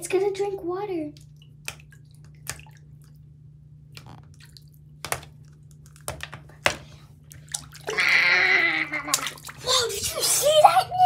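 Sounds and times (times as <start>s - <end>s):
small water splashes and drips: 1.1s - 6.3s, 7.2s - 10.0s.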